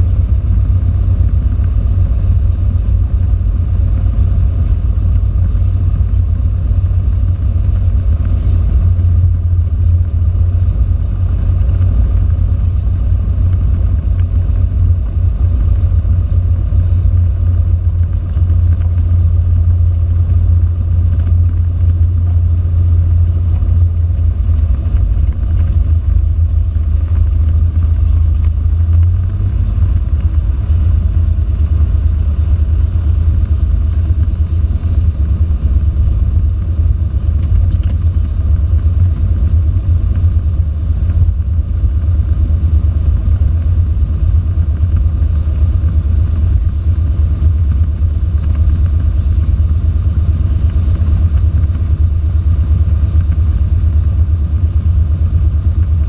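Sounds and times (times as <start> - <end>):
aircraft engine drone from cabin: 0.0 - 56.0.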